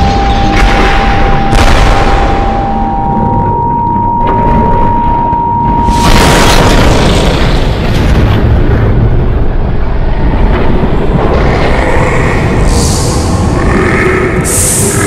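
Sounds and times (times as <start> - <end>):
steady high tone: 0.0 - 6.6
loud explosion blast: 0.0 - 12.9
deep rumble: 0.0 - 15.0.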